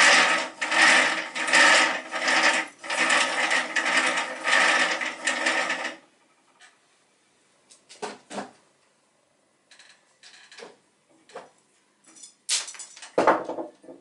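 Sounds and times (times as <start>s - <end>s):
rope-twisting rig whirring: 0.0s - 6.0s.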